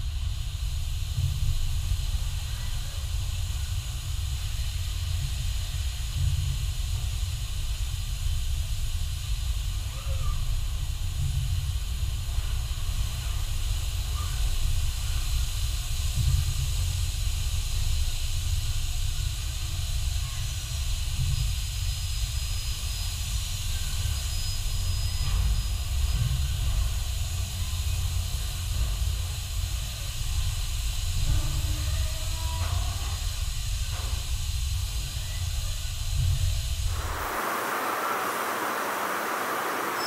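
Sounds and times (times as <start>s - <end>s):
hissing air: 36.8s - 40.0s
low rumble: 36.9s - 40.0s.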